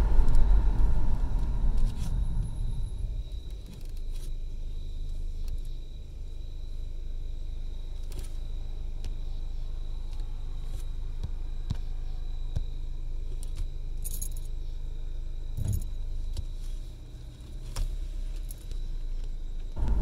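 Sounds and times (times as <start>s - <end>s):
car engine idling: 0.0s - 5.3s, 19.8s - 20.0s.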